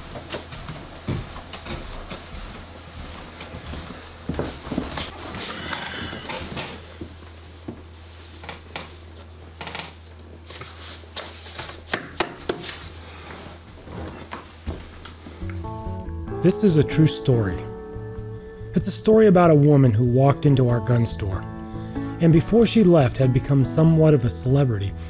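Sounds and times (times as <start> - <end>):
footsteps and rustles: 0.0 - 15.7
steady low hum: 0.0 - 25.0
office chair creaking: 9.5 - 10.0, 13.2 - 15.2.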